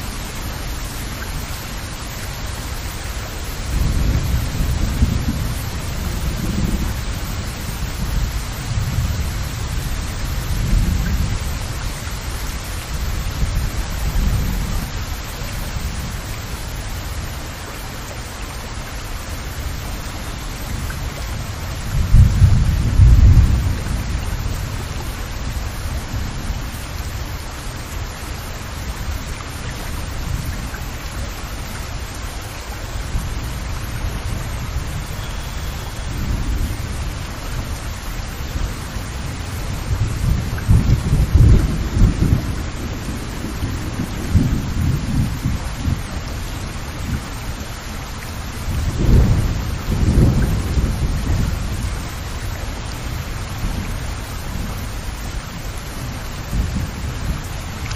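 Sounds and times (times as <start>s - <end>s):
heavy rain: 0.0s - 57.9s
deep thunder rumbles: 3.6s - 15.2s, 20.6s - 26.7s, 38.4s - 47.3s, 48.3s - 57.9s.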